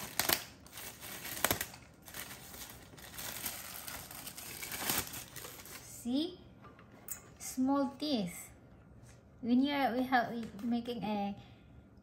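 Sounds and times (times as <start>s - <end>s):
plastic packaging crinkling: 0.0s - 6.0s.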